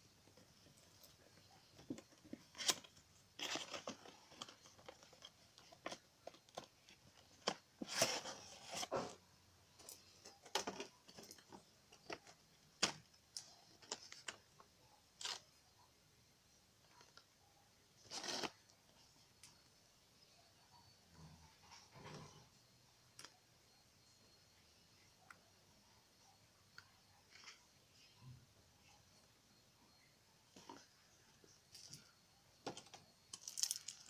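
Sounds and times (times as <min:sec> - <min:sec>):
plastic packaging crinkling: 0:33.3 - 0:34.0.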